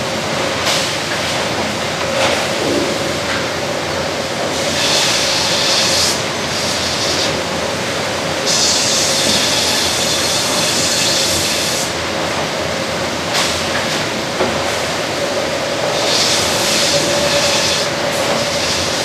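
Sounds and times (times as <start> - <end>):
band saw machinery noise: 0.0 - 19.0.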